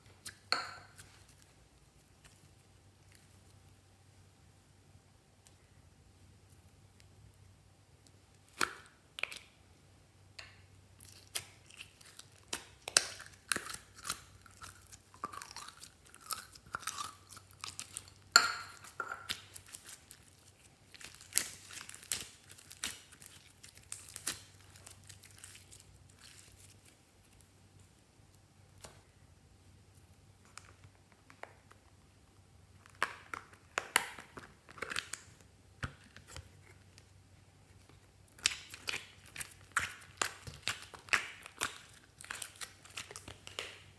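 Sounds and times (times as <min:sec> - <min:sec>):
slime squelching and popping: 0:10.4 - 0:27.4, 0:38.2 - 0:43.9.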